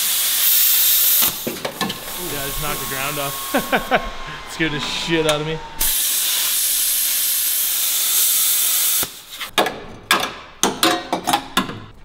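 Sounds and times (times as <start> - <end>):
plasma cutter hissing: 0.0 - 9.5.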